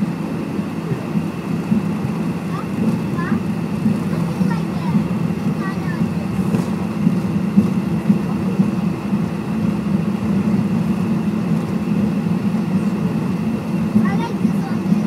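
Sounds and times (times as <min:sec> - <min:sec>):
jet cabin hum and rumble: 0:00.0 - 0:15.0.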